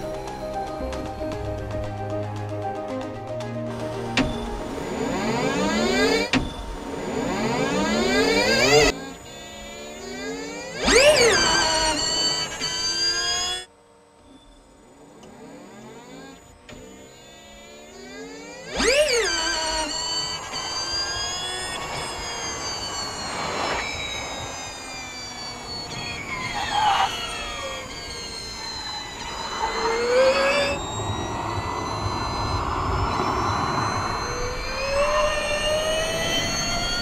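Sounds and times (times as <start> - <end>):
electric race car whining: 3.7 - 37.0
tyre and road noise: 18.7 - 37.0.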